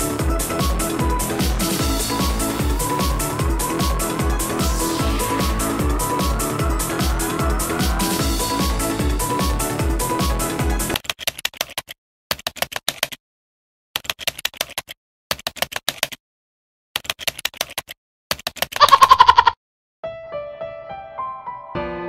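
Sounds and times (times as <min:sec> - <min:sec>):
keyboard typing clicks: 0:11.0 - 0:13.2, 0:14.0 - 0:16.2, 0:17.0 - 0:19.4.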